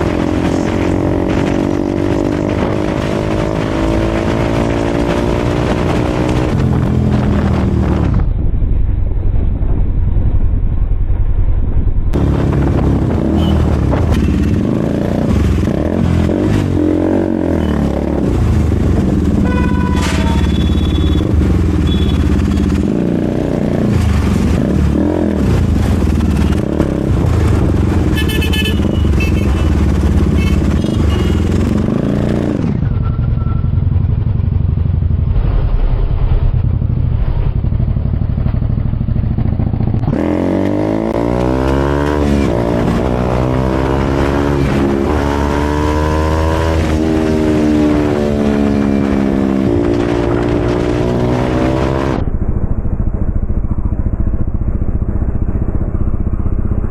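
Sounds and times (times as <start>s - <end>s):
motorcycle engine revving: 0.0s - 8.4s, 12.1s - 56.9s.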